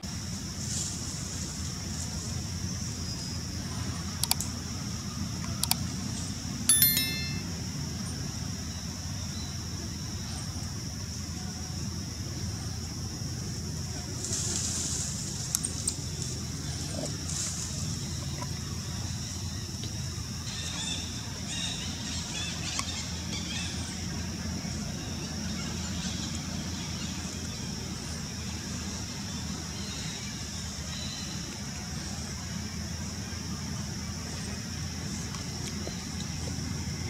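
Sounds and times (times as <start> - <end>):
faint chirps: 6.7 - 7.5.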